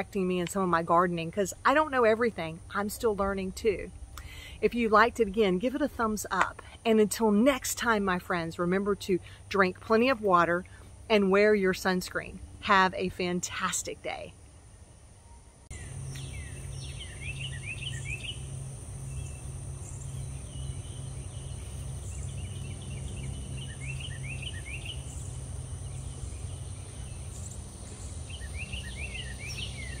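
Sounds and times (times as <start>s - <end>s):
high insect drone: 14.2s - 30.0s
small birds chirping: 15.7s - 30.0s.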